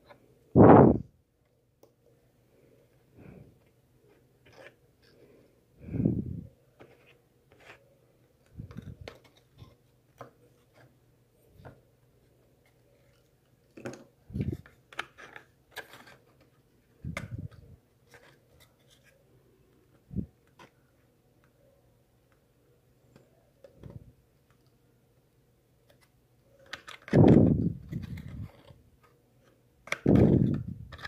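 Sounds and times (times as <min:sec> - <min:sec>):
cardboard and glue tube handled: 0:06.7 - 0:11.9, 0:12.5 - 0:19.2, 0:25.8 - 0:31.0.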